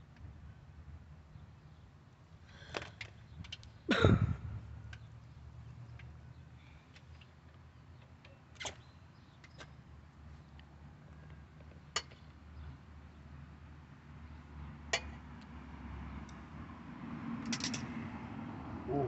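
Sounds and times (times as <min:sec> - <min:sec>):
metal tools clinking: 0:17.5 - 0:17.9.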